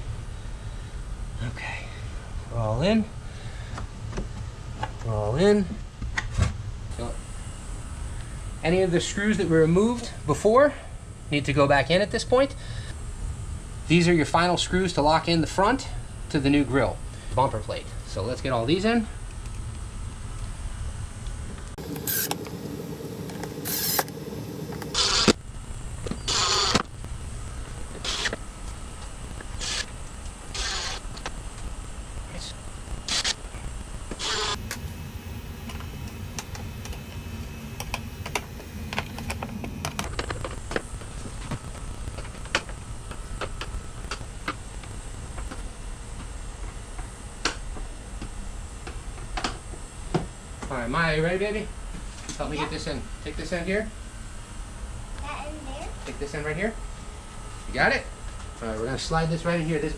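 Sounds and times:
low steady hum: 0:00.0 - 0:59.9
impact driver driving screws: 0:24.9 - 0:25.4, 0:26.3 - 0:26.8, 0:28.0 - 0:28.4, 0:29.6 - 0:29.9, 0:30.5 - 0:31.0, 0:33.1 - 0:33.4, 0:34.2 - 0:34.6.

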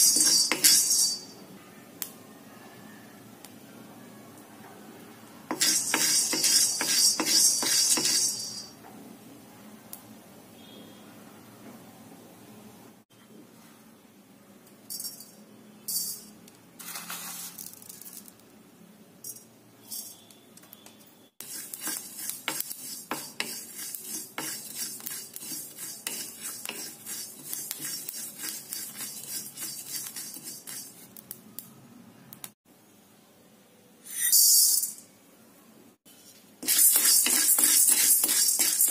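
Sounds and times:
seeds stirred and scraped in wok: 0:00.0 - 0:01.4, 0:05.5 - 0:08.8, 0:21.4 - 0:31.4, 0:36.1 - 0:38.9
seeds rattling into pan: 0:16.8 - 0:18.5, 0:36.6 - 0:38.9.

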